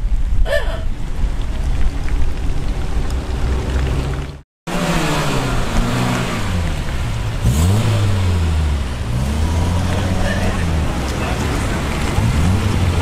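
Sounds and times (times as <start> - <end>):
tyres hissing on wet road: 1.5 - 13.0
car engine rumbling past: 1.6 - 13.0
car engine accelerating past: 3.1 - 13.0.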